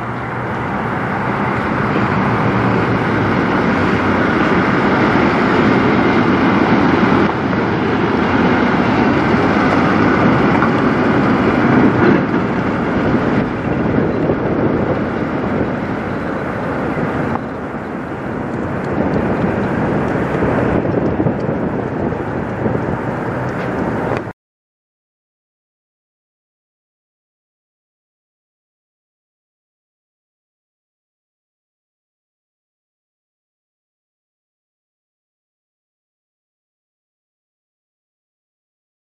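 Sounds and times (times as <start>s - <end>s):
truck diesel engine under load: 0.0s - 24.4s
tyre and road noise: 0.0s - 24.4s.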